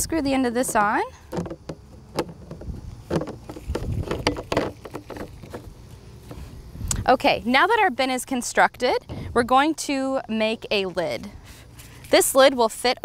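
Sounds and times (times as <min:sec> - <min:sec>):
plastic parts clicking and knocking: 0:00.6 - 0:05.7.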